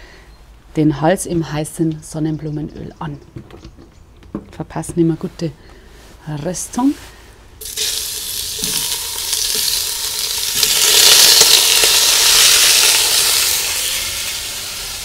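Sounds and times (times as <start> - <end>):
meat sizzling in hot oil: 7.6 - 15.0.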